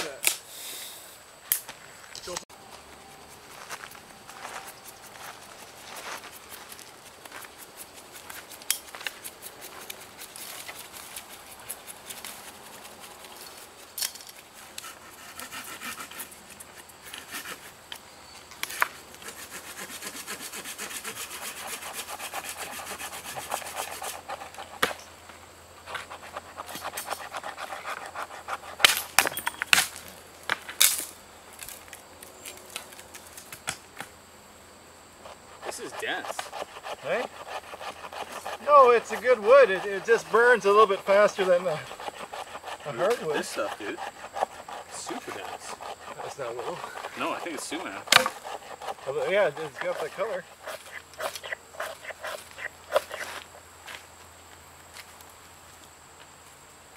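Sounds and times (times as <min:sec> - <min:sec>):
knife shaving wood: 0:04.3 - 0:13.9, 0:18.6 - 0:25.0, 0:35.2 - 0:53.6.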